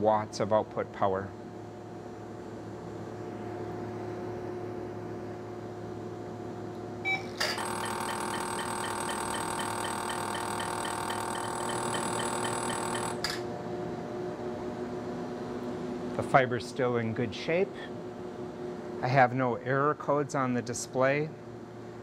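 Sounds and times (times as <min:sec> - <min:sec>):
laser unit humming: 0:07.0 - 0:13.4
short beep: 0:07.1 - 0:13.1
laser buzzing with tones: 0:07.1 - 0:13.4.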